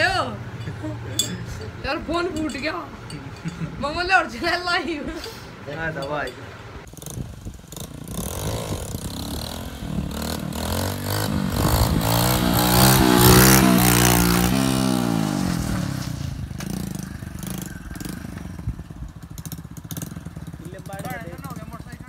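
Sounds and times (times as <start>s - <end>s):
motorcycle engine revving: 6.8s - 22.0s.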